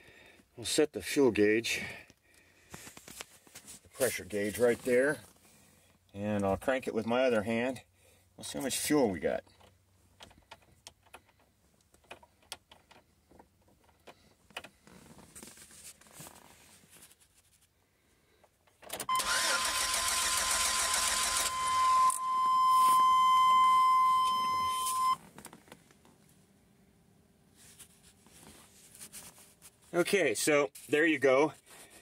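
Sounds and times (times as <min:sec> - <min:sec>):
engine cranking on starter: 0:19.0 - 0:22.1.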